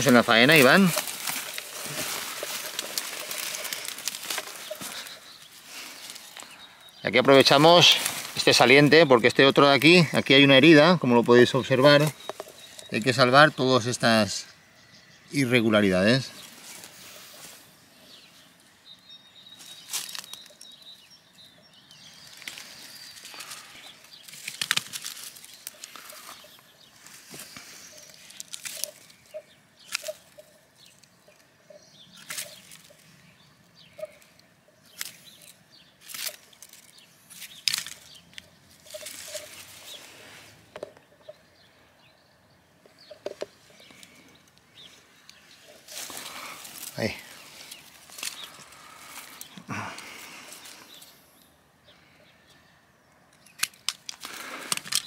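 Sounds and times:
scraping rustles: 0:00.0 - 0:06.5.

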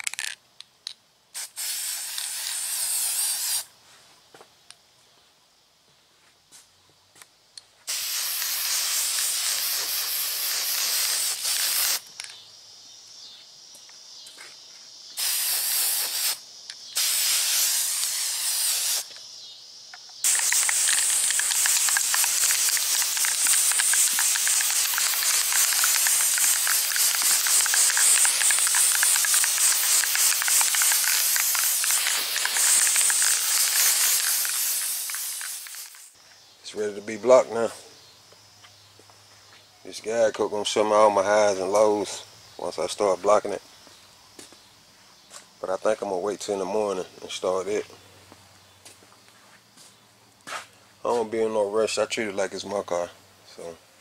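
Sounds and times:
aerosol spray can hissing: 0:01.4 - 0:03.7, 0:07.9 - 0:12.1, 0:15.2 - 0:19.2, 0:20.2 - 0:36.2.

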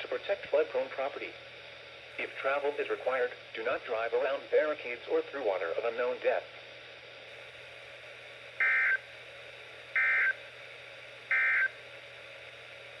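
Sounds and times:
buzzy data tone bursts from speaker: 0:02.0 - 0:04.7, 0:07.3 - 0:13.0.

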